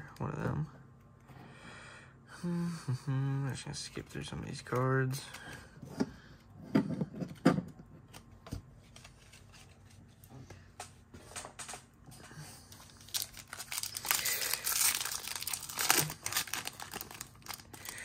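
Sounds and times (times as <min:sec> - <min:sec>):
foil wrapper crinkling and tearing: 0:12.6 - 0:18.0.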